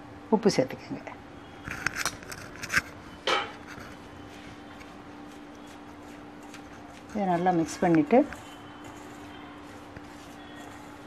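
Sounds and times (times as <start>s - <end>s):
spoon scraping bowl: 1.6s - 11.0s.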